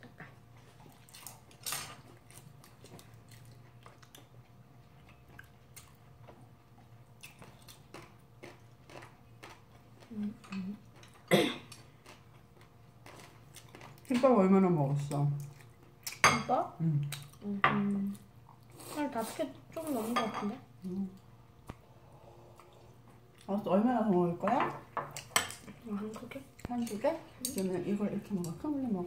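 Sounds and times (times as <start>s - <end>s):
chewing: 0.0s - 14.2s, 15.4s - 16.2s.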